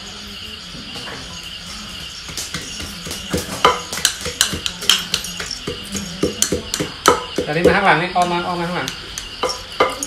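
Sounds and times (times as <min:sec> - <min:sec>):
pestle pounding in mortar: 0:02.0 - 0:10.0.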